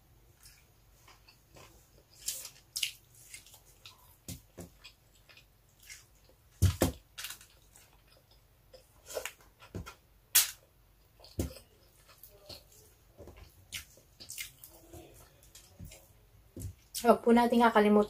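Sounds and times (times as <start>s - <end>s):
chewing and mouth smacks: 0.4s - 6.4s, 11.1s - 16.1s.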